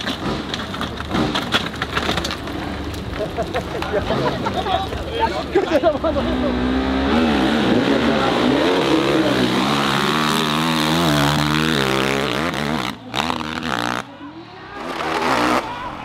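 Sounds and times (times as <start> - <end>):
dirt bike engine revving: 6.1 - 14.1, 14.8 - 15.8.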